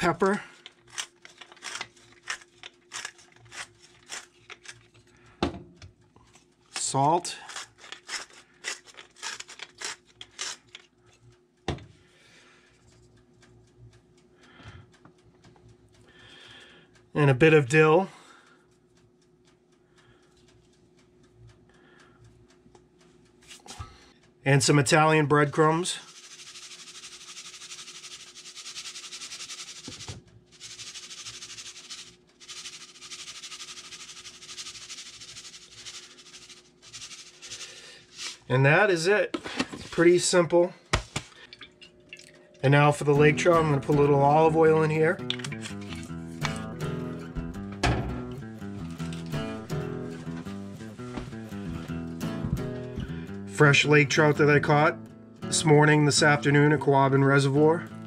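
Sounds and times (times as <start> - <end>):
salt grinder grinding: 0.0 - 5.0, 6.8 - 10.8, 26.0 - 38.5, 45.2 - 47.0, 48.8 - 50.5
breadcrumbs shaken from a canister: 25.8 - 38.5.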